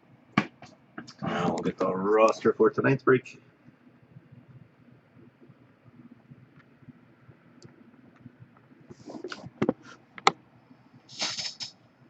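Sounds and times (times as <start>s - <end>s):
noisy rustle: 4.0s - 10.0s, 11.0s - 11.9s.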